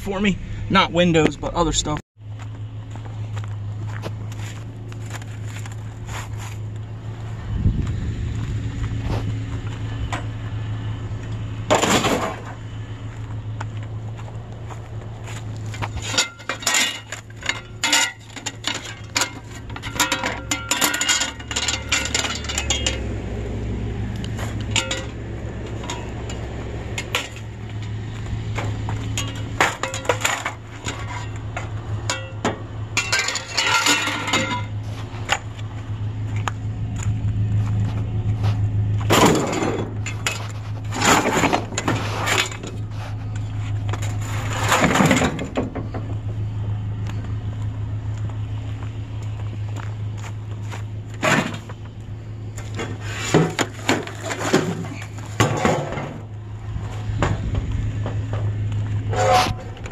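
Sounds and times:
truck engine idling: 0:02.2 - 0:59.9
sheet metal clanking and rattling: 0:15.8 - 0:23.1, 0:28.6 - 0:34.8, 0:44.0 - 0:46.2, 0:52.7 - 0:56.4.

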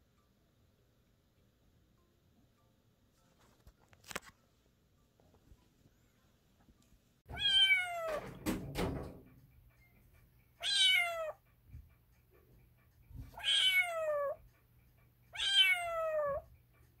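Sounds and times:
kitten meowing: 0:07.3 - 0:08.2, 0:10.6 - 0:11.4, 0:13.4 - 0:14.4, 0:15.4 - 0:16.5.

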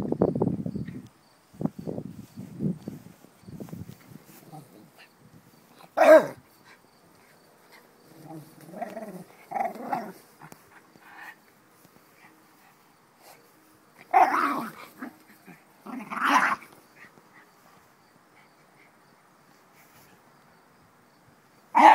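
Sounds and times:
dog growling in play: 0:08.1 - 0:10.5, 0:14.1 - 0:16.7.

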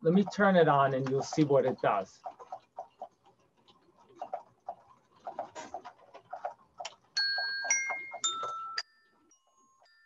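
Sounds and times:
ringing xylophone notes: 0:07.2 - 0:10.0.

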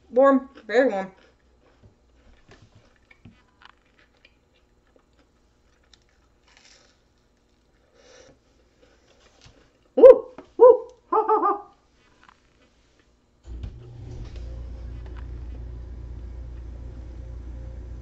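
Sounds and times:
person chewing pastry: 0:00.4 - 0:10.0, 0:11.8 - 0:13.2.

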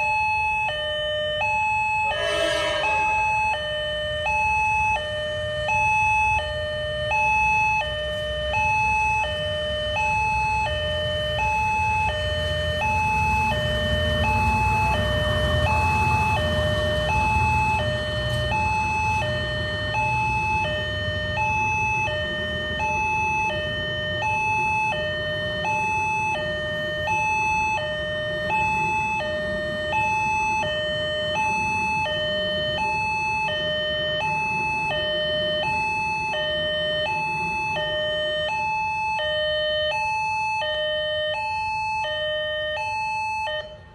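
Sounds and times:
level crossing two-tone alarm: 0:00.0 - 0:43.9
passenger train passing: 0:02.0 - 0:04.3, 0:12.0 - 0:32.8.

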